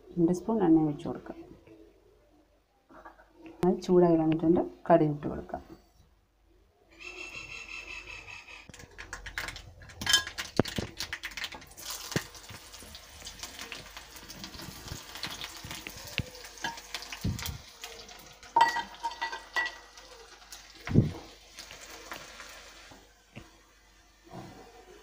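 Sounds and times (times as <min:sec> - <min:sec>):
seeds popping in hot oil: 0:08.7 - 0:22.6
onion sizzling: 0:08.7 - 0:25.0.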